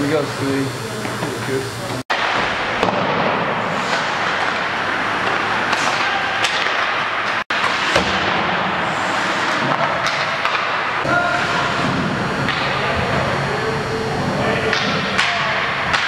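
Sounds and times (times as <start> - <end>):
pucks striking goalie pads: 2.1 - 13.3, 14.6 - 16.0
sticks hitting pucks: 2.1 - 13.3, 14.4 - 16.0
skates scraping on ice: 2.7 - 11.9.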